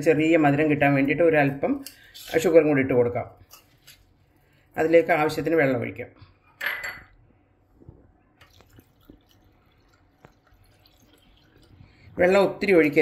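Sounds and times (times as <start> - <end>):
water pouring into steel bowl: 8.4 - 13.0.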